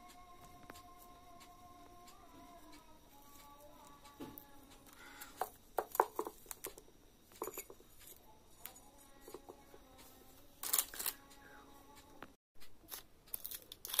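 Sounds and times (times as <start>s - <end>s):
tool tapping clay: 4.0s - 8.2s.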